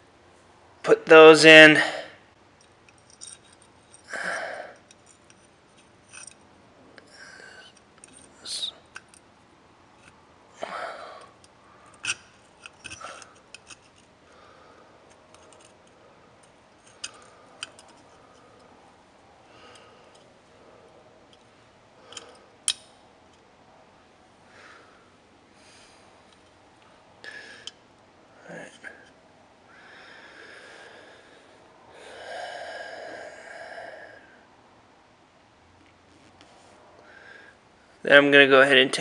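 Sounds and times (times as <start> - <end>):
metal gun parts clicking: 11.9 - 14.1, 15.1 - 18.0.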